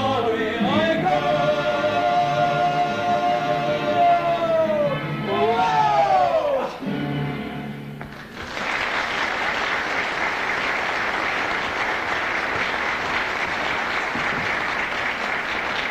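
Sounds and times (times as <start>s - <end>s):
audience applause: 8.1s - 15.9s.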